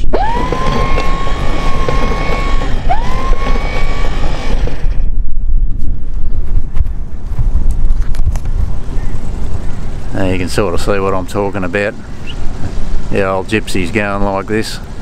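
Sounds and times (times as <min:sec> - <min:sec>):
winch motor whine: 0:00.0 - 0:05.2
low rumble: 0:00.0 - 0:13.2.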